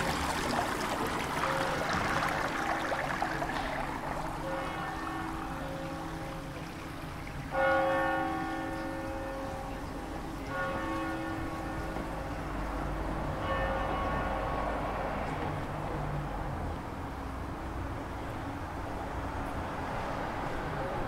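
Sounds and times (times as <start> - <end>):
church bell tolling: 4.4 - 14.9.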